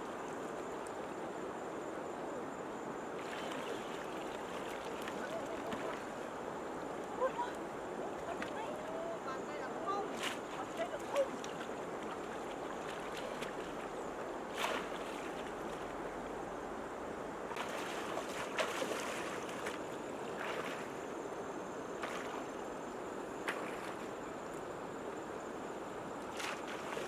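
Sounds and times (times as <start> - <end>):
rushing river water: 0.0 - 27.0
people wading through water: 3.1 - 16.3, 17.5 - 24.7, 26.1 - 27.0
sharp water splashes: 14.5 - 15.5, 17.6 - 20.9.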